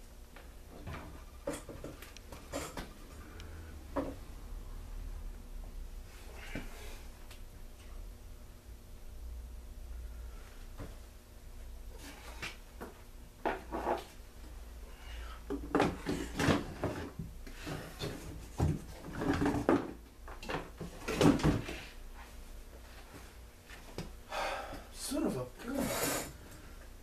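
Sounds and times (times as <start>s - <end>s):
objects knocking and clattering: 0.7s - 3.0s, 15.5s - 21.8s.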